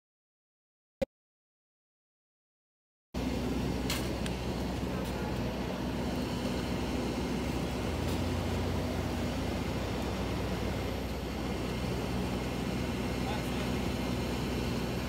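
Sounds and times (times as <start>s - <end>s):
airliner drone: 3.2s - 15.0s.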